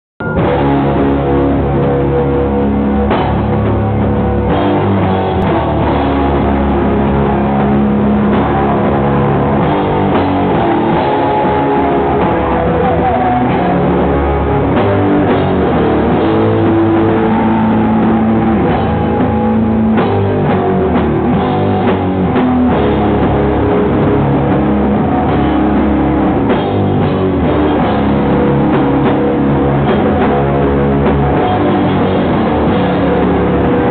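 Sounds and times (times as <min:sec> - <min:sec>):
loud live rock band: 0:00.2 - 0:33.9.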